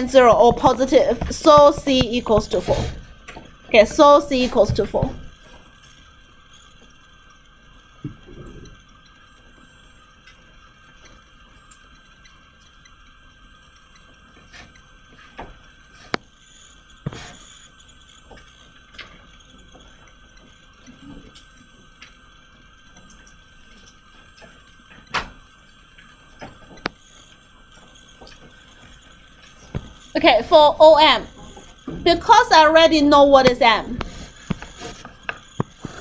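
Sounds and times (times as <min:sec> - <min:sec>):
sharp clicks and knocks: 0:00.0 - 0:05.3
faint steady hum: 0:00.0 - 0:36.0.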